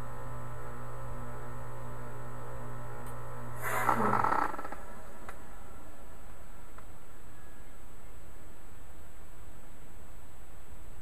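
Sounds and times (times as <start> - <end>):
heat pump running: 0.0 - 7.5.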